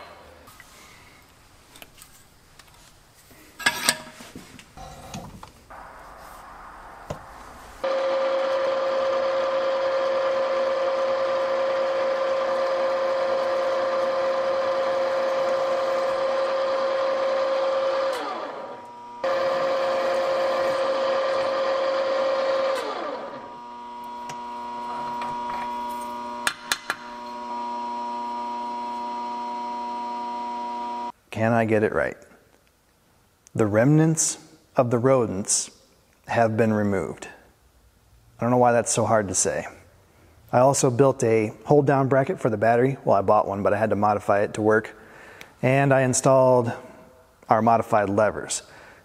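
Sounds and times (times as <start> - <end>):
drill press running: 7.8 - 31.1.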